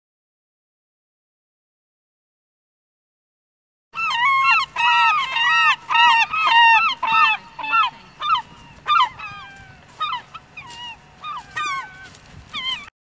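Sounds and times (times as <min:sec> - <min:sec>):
gulls crying: 0:04.0 - 0:12.9.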